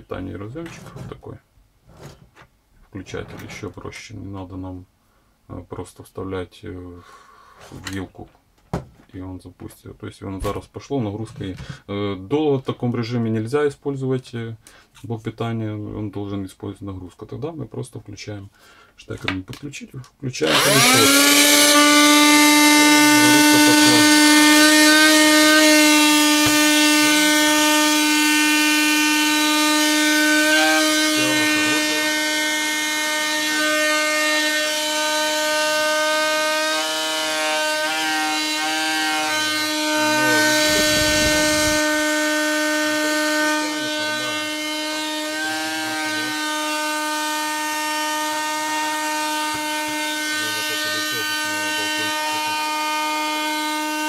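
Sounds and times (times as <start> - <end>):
vacuum cleaner motor whine: 20.5 - 54.0.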